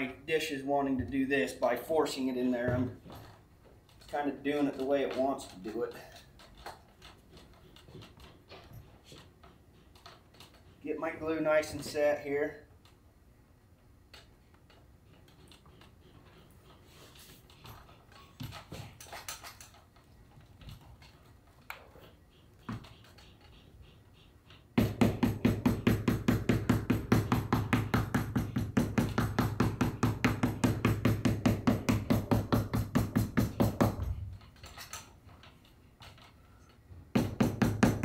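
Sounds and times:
rapid tapping on leather: 24.8s - 34.2s, 37.1s - 38.0s.

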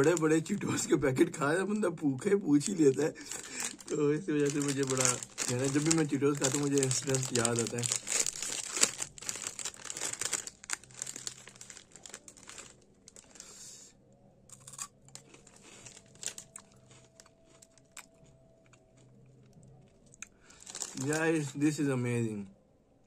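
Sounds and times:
foil snack packet crinkling: 0.0s - 0.9s, 1.6s - 13.6s, 15.1s - 18.3s, 20.2s - 21.6s
crunchy snack chewing: 14.5s - 21.0s.

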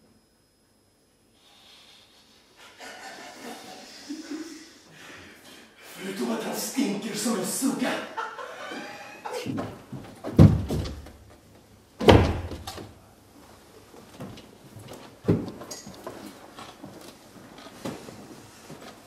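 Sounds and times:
heavy thuds: 9.4s - 11.4s, 12.0s - 12.9s.

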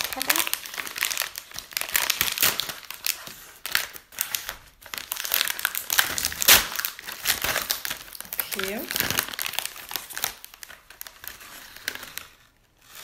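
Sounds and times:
snack packet crinkling and tearing: 0.0s - 13.0s.

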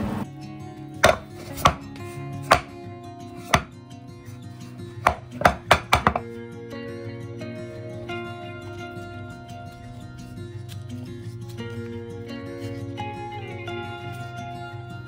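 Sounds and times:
soft background music: 0.1s - 15.0s
metal pan knocking on wooden board: 1.0s - 1.8s, 2.5s - 2.7s, 3.5s - 3.7s, 5.0s - 6.2s.

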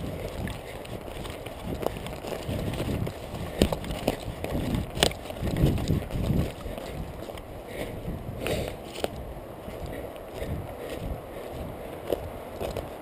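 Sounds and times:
footsteps through moss and undergrowth: 0.0s - 13.0s.

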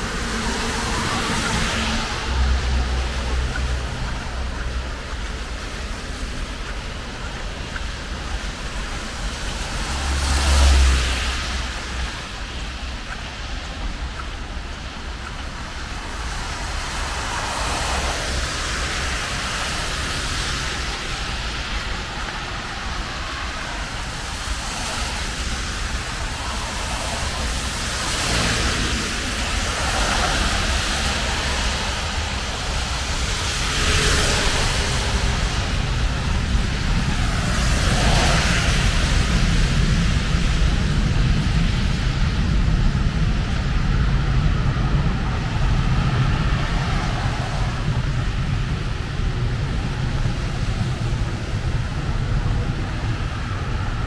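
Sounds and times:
vehicle passing with low rumble: 0.0s - 23.8s
rain hiss: 0.0s - 54.0s
tyres hissing on wet road: 0.0s - 54.0s.

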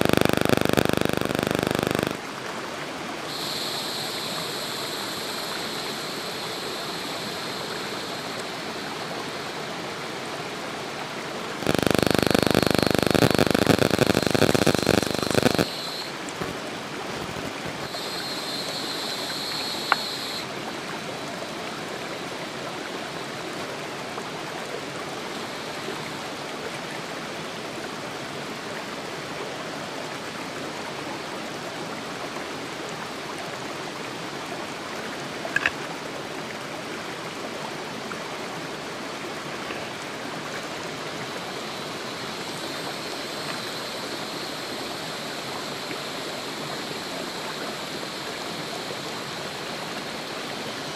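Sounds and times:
high buzz: 0.0s - 2.2s, 3.3s - 8.8s, 11.6s - 16.6s, 17.2s - 20.5s
short clicks: 0.0s - 2.2s, 11.6s - 16.6s, 17.2s - 20.4s, 35.6s - 35.8s
stream running over rocks: 2.1s - 13.5s, 15.7s - 50.9s.

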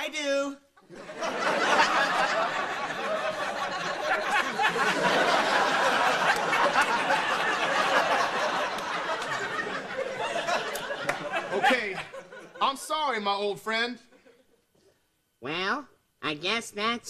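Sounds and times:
studio audience laughing: 0.8s - 12.7s.

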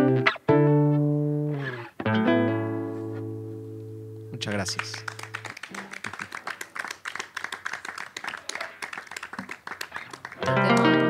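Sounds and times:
small audience applauding: 4.4s - 11.0s.

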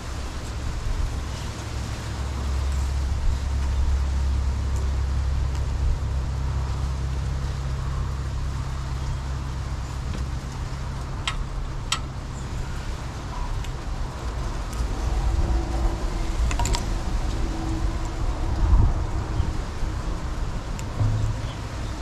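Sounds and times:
low rumble: 14.0s - 22.0s.

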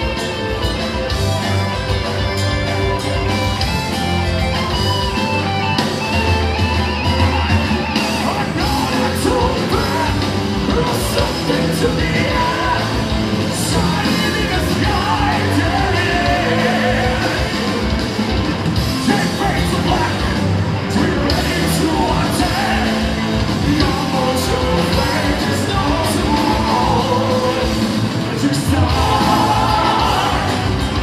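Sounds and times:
drums: 0.0s - 31.0s
electric guitars: 0.0s - 31.0s
keyboards: 0.0s - 31.0s
singer's vocals: 8.0s - 18.0s, 18.8s - 31.0s.

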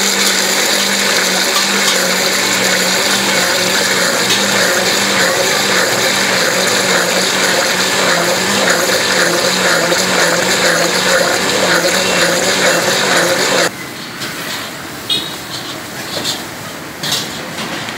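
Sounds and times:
blender motor running: 0.0s - 13.7s.

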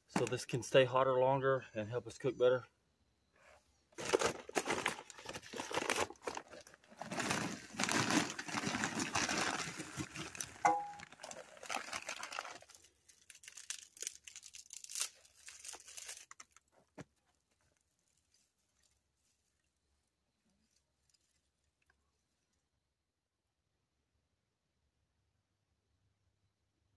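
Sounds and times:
bag crinkling: 4.0s - 16.7s
twigs rustling and ticking: 4.0s - 22.6s
briquettes clattering into fire pit: 10.3s - 15.2s.

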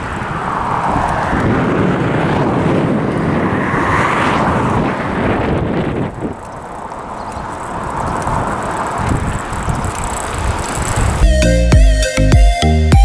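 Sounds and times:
wind buffeting microphone: 0.0s - 11.7s.

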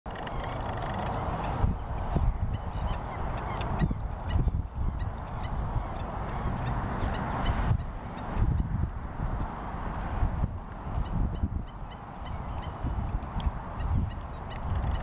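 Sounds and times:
bird yipping calls: 0.1s - 8.7s.

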